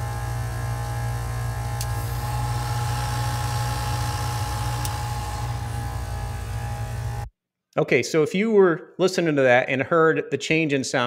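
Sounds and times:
compressor humming: 0:00.0 - 0:07.3.

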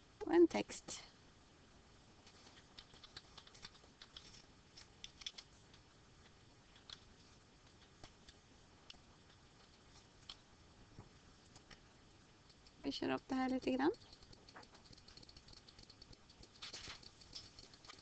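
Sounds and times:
keyboard typing: 0:02.4 - 0:04.4, 0:13.6 - 0:18.0.

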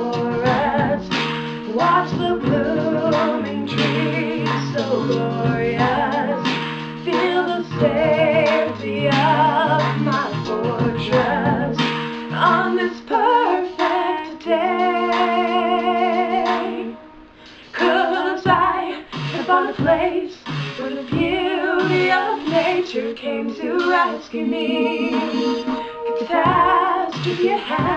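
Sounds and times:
harmony vocal: 0:00.0 - 0:27.9
instrumental accompaniment: 0:00.0 - 0:27.9
woman singing with vibrato: 0:00.0 - 0:27.9.

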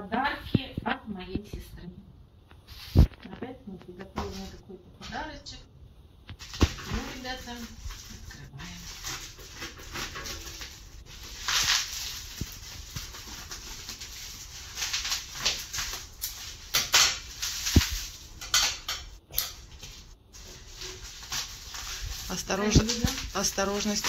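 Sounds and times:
plastic bag rustling: 0:06.3 - 0:24.0.

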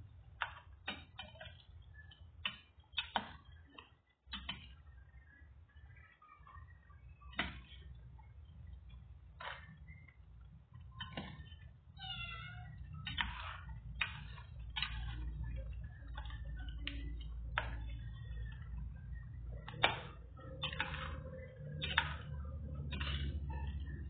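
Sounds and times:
low steady hum: 0:00.0 - 0:24.0
thick sauce popping in a pot: 0:00.3 - 0:06.1, 0:12.6 - 0:24.0.

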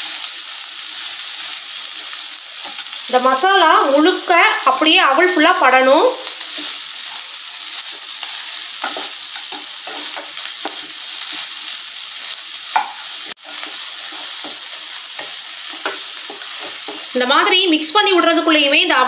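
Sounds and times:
food sizzling in oil: 0:00.0 - 0:19.0
spatula scraping a frying pan: 0:08.2 - 0:17.2.

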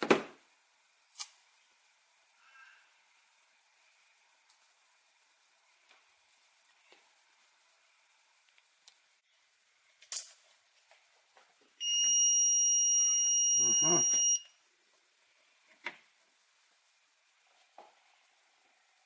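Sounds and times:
multimeter high beep: 0:11.8 - 0:14.5.

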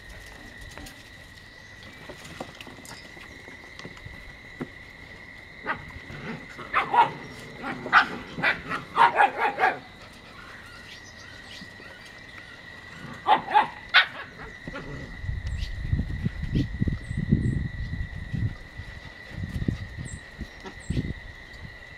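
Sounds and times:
puppies barking in sharp yaps: 0:06.7 - 0:09.9, 0:13.2 - 0:14.5.

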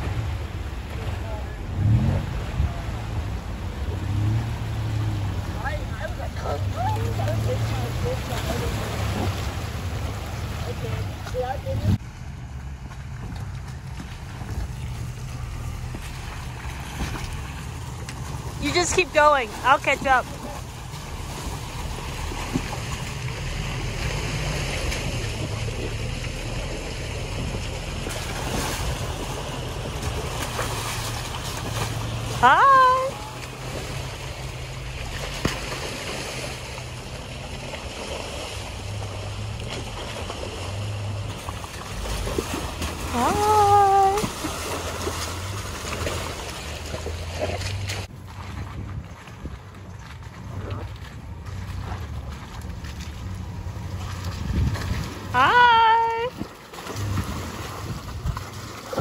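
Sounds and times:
truck engine rumbling: 0:00.0 - 0:59.0
wind noise on microphone: 0:47.8 - 0:51.4, 0:53.4 - 0:59.0.

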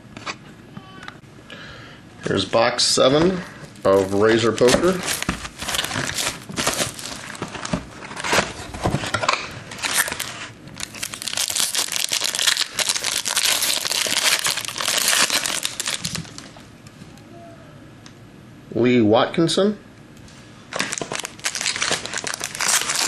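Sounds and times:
plastic wrapping tearing and crinkling: 0:03.8 - 0:16.6, 0:20.7 - 0:23.0.

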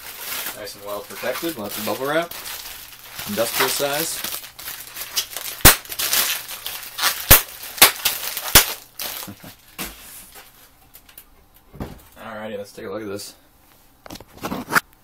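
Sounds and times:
bubble wrap crinkling: 0:00.0 - 0:11.2.

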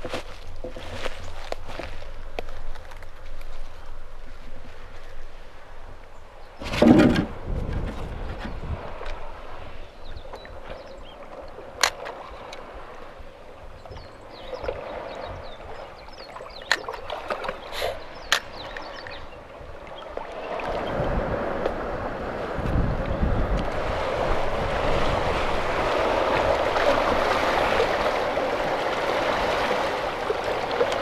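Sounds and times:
wind buffeting microphone: 0:00.0 - 0:31.0
water lapping among rocks: 0:06.6 - 0:31.0.

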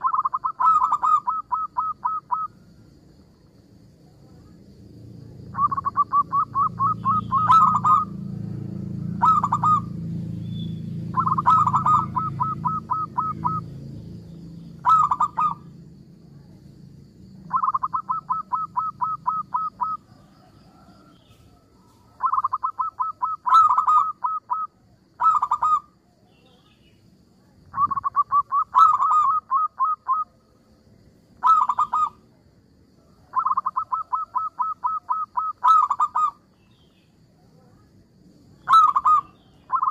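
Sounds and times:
dove cooing: 0:00.0 - 0:02.6, 0:05.5 - 0:08.4, 0:09.1 - 0:10.0, 0:11.0 - 0:13.8, 0:14.8 - 0:15.7, 0:17.5 - 0:25.9, 0:27.7 - 0:30.4, 0:31.4 - 0:32.2, 0:33.2 - 0:36.4, 0:38.6 - 0:39.9.

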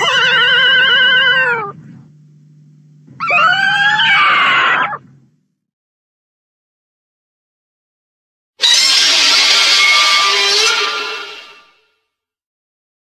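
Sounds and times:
high wavering monster cries: 0:00.0 - 0:01.8, 0:03.2 - 0:05.0, 0:08.6 - 0:11.6
faint low hum: 0:00.0 - 0:05.7.

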